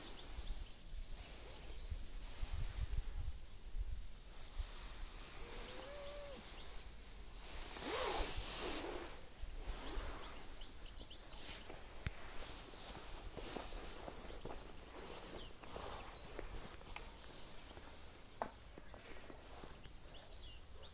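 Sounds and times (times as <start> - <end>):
faint chirps: 3.8 - 20.9
rising-and-falling call: 5.4 - 6.6
camera rustling scrape: 11.3 - 20.3.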